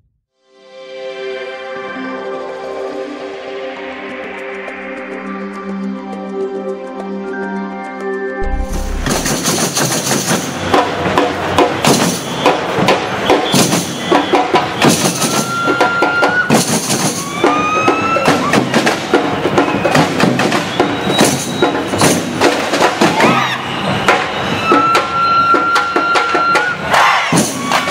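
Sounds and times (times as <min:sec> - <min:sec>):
high sliding tones: 0:08.4 - 0:10.7
samba percussion music: 0:08.4 - 0:27.9.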